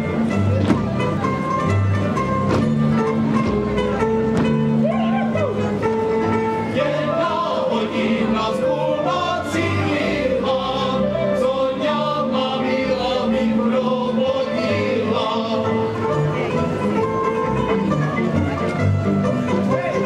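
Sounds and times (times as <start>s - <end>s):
cimbalom band playing folk dance: 0.0s - 20.0s
voices singing along: 6.7s - 16.0s.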